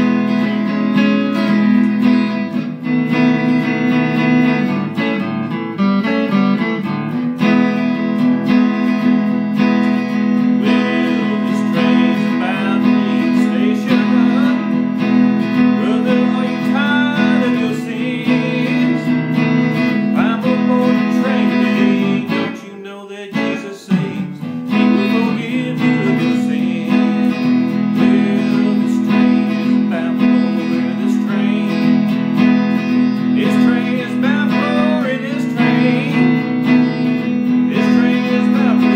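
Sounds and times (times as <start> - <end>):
electric guitar playing: 0.0 - 38.9
man singing: 9.7 - 38.9.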